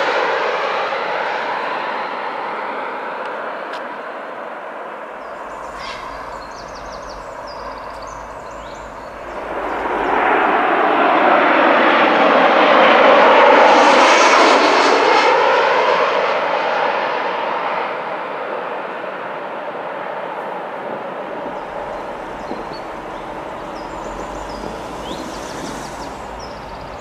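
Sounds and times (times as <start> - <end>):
jet airliner passing overhead: 0.0 - 27.0
bird chirps: 5.2 - 10.3, 21.6 - 27.0.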